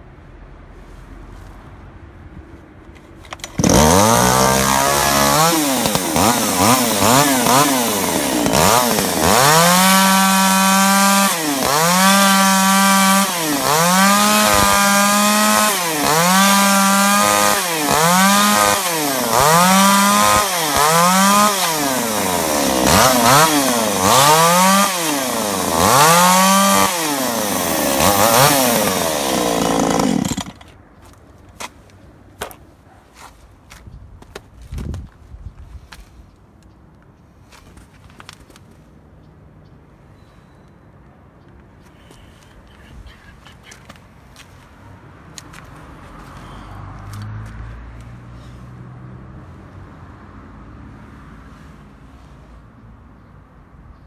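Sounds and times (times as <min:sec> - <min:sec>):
chainsaw revving and cutting wood: 0:03.4 - 0:30.7.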